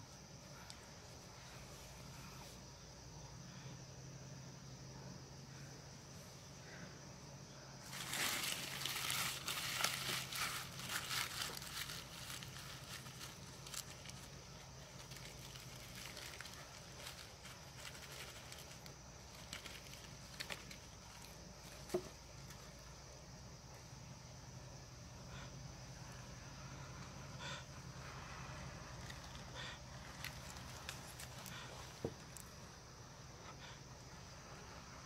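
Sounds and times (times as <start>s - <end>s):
dry leaves crinkling by hand: 7.8s - 22.9s, 28.6s - 32.7s.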